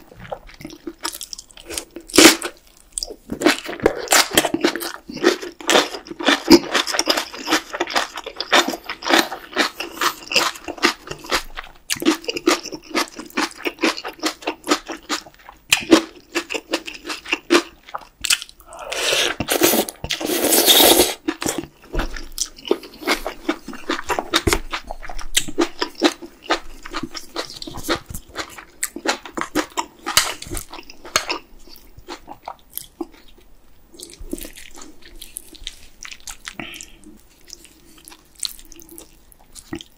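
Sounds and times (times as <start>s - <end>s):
chewing and wet mouth sounds: 0.0s - 39.9s
slurping noodles: 18.6s - 21.3s.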